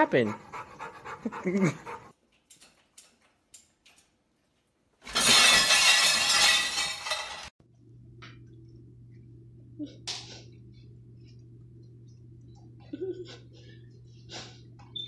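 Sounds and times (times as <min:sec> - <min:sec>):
crash of plates and bowls: 0:05.0 - 0:07.5.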